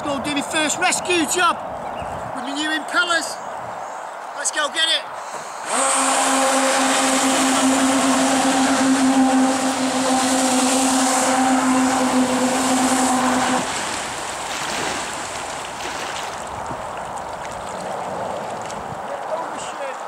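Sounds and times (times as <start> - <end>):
rush of water: 5.3 - 20.0
water jet hissing: 5.4 - 14.5.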